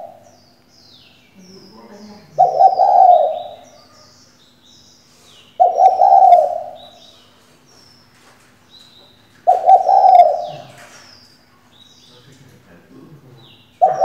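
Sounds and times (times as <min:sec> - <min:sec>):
dove cooing: 0:00.0 - 0:00.3, 0:01.6 - 0:04.4, 0:05.5 - 0:07.4, 0:09.4 - 0:11.2, 0:13.8 - 0:14.0
small birds chirping: 0:00.0 - 0:14.0.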